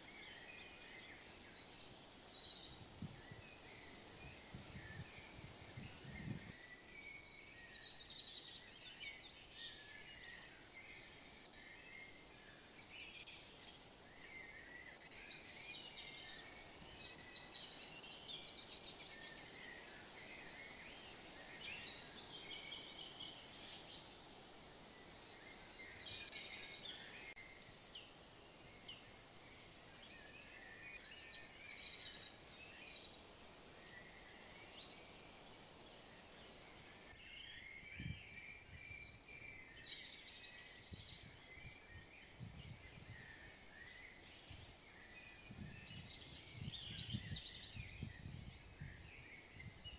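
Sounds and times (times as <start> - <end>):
songbirds chirping and singing: 0.0 - 49.9.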